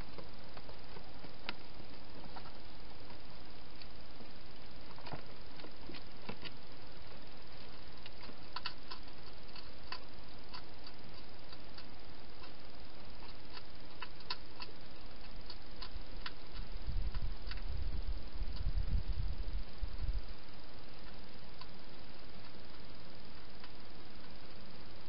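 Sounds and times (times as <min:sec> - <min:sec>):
steady hiss: 0:00.0 - 0:25.0
hedgehog eating clicks and crunches: 0:04.6 - 0:18.8, 0:20.9 - 0:24.5.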